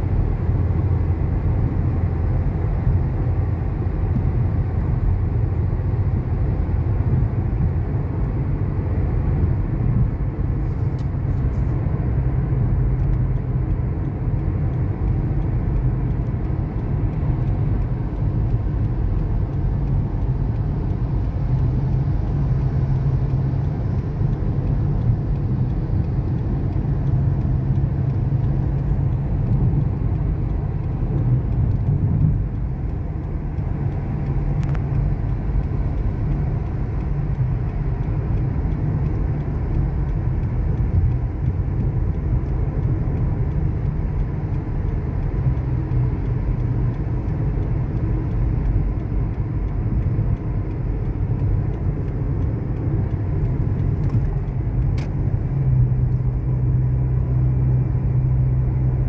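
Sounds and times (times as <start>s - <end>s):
car engine and tyre rumble: 0.0s - 59.0s.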